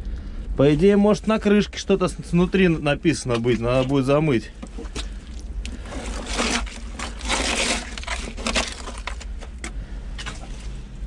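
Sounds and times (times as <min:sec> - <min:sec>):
steady low hum: 0:00.0 - 0:11.0
scraping wet earth from wooden box: 0:04.7 - 0:10.7.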